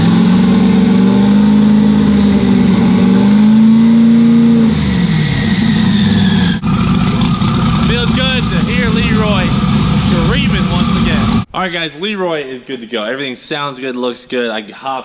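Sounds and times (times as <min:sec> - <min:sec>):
car engine revving and idling: 0:00.0 - 0:11.5.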